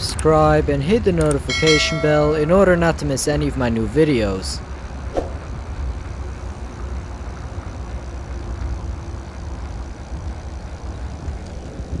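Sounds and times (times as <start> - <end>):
bike tyre noise on pavement: 4.7 - 12.0
wind rumble on microphone: 4.7 - 12.0.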